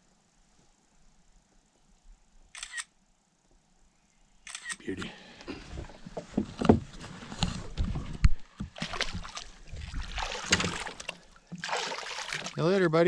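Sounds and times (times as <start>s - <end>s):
water splashing against boat: 7.4s - 12.8s.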